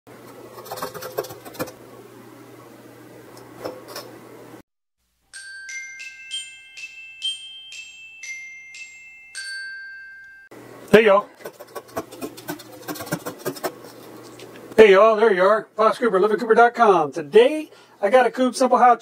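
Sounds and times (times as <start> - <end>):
low room hum: 0.1 - 4.6
glockenspiel jingle: 5.2 - 10.5.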